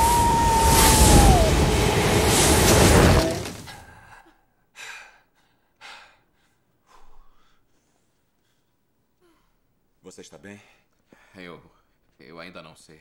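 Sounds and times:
high wail falling in pitch: 0:00.0 - 0:03.6
sand whirlwind rushing: 0:00.0 - 0:03.7.

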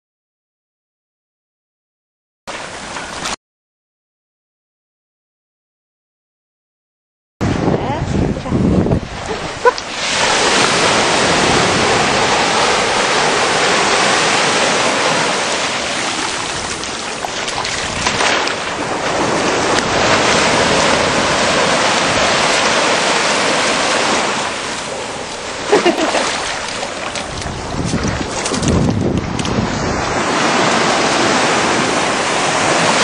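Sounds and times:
sea surf washing ashore: 0:07.4 - 0:33.0.

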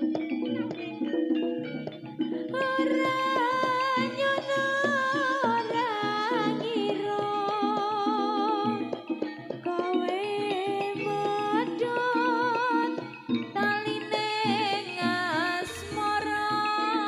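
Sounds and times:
hand drum beats: 0:00.0 - 0:17.0
struck melodic notes: 0:00.0 - 0:17.0
wavering melody line: 0:00.0 - 0:17.0.

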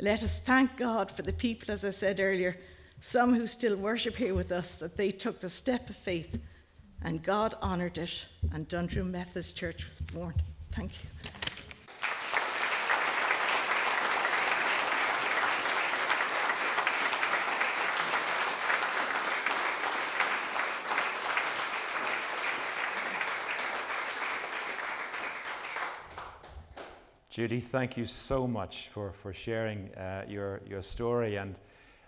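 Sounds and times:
congregation applauding: 0:11.8 - 0:27.1.

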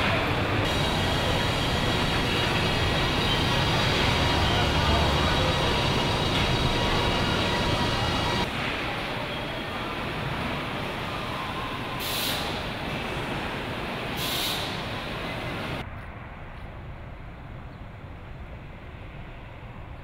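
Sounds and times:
factory machinery din: 0:00.0 - 0:15.8
air hisses: 0:00.7 - 0:08.5, 0:12.0 - 0:12.7, 0:14.2 - 0:15.0.

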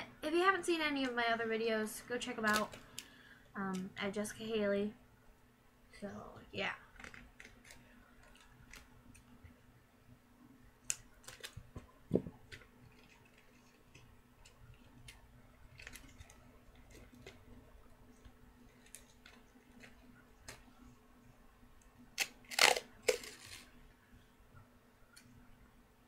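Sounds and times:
tape and foil crinkling: 0:02.4 - 0:03.1, 0:10.8 - 0:11.7, 0:12.4 - 0:17.6, 0:18.6 - 0:20.6, 0:22.2 - 0:23.7.

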